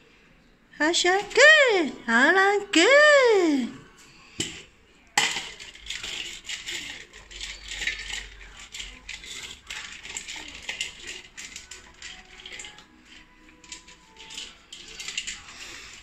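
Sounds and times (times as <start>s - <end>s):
kibble rattling in metal bowl: 5.2s - 16.0s
metal bowl clanking on floor: 5.2s - 16.0s.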